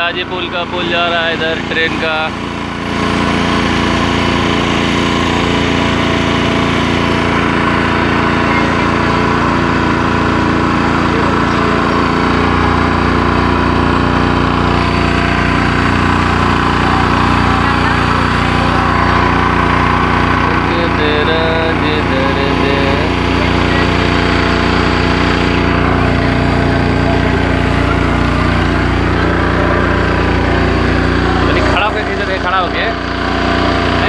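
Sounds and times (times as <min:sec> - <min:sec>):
motorboat engine humming: 0:00.0 - 0:34.0.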